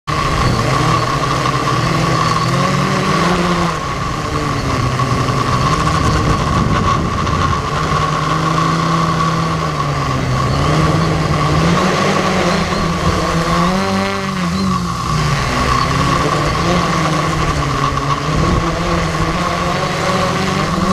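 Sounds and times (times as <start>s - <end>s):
drone motors whining: 0.1s - 20.9s
wind buffeting microphone: 3.6s - 14.0s, 15.2s - 20.9s.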